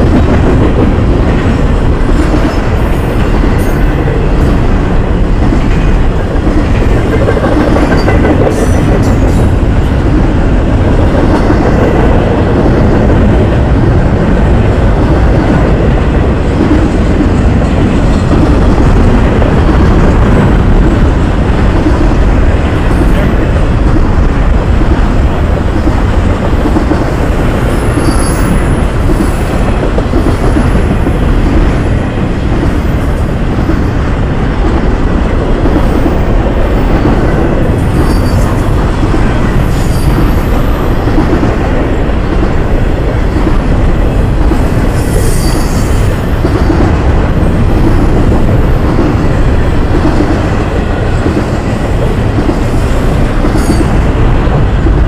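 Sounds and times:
train wheels rumbling on rail: 0:00.0 - 0:55.0
wheel squeals: 0:27.8 - 0:28.8.

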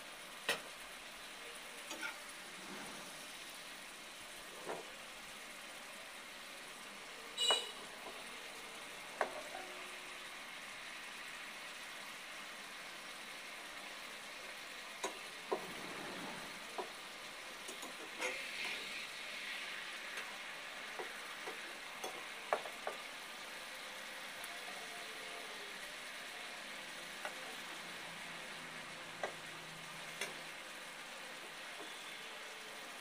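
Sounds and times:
fish sizzling in gravy: 0:00.0 - 0:33.0
metal spatula scraping pan: 0:01.9 - 0:03.3, 0:17.9 - 0:19.1.

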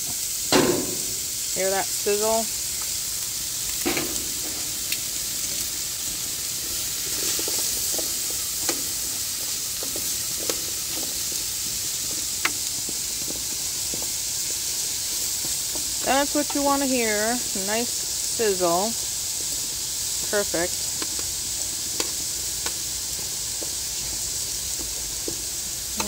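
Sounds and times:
vegetables sizzling on hot pan: 0:00.0 - 0:26.0.

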